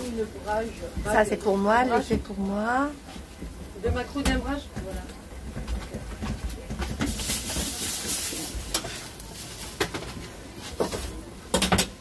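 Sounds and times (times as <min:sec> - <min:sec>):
taps and knocks on metal counter: 0:10.8 - 0:12.0.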